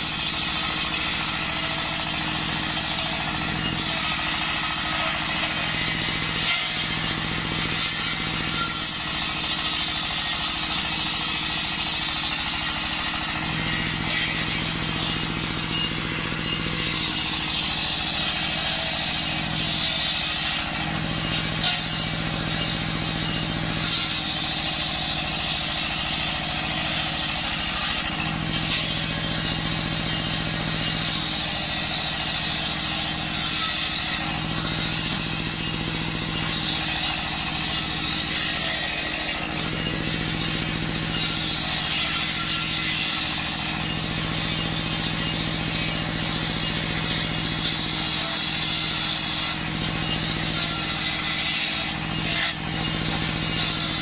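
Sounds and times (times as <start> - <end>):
diesel engine running: 0.0 - 54.0
circular saw ripping log: 47.4 - 54.0.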